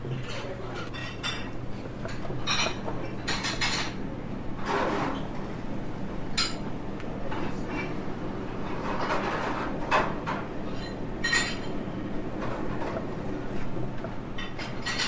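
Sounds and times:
crockery and cutlery clinking: 0.0 - 4.0, 8.9 - 11.8, 14.4 - 15.0.

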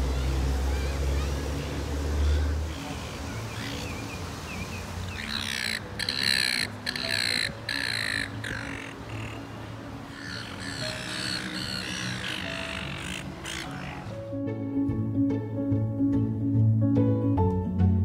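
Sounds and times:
gulls squawking: 0.0 - 14.2.

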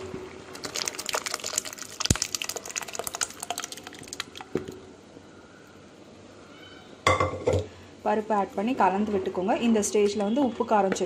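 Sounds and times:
thick liquid splashing and plopping: 0.5 - 4.8.

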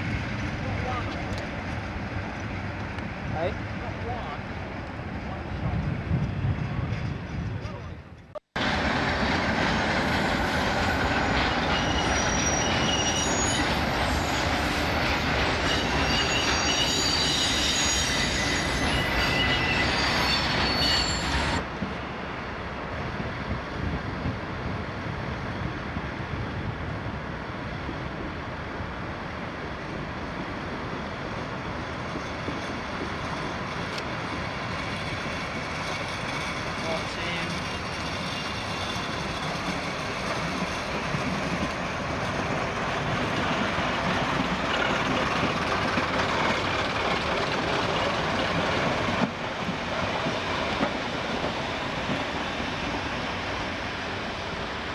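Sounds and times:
diesel train running: 0.0 - 54.9
train rolling noise: 0.0 - 54.9
train wheels squealing: 9.8 - 21.6, 31.8 - 49.2.

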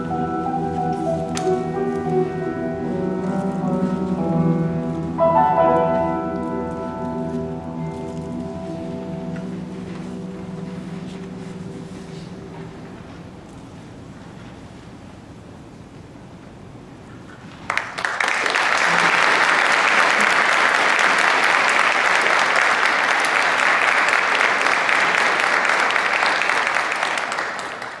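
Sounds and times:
audience applause: 17.6 - 28.0.

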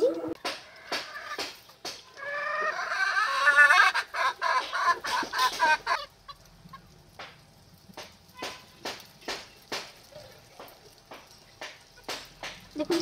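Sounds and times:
chicken calling: 2.1 - 6.8.

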